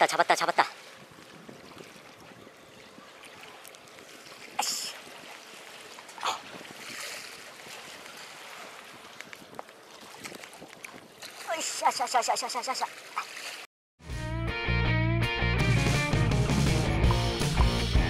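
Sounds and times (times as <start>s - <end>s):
sea water lapping on concrete: 0.0s - 13.7s.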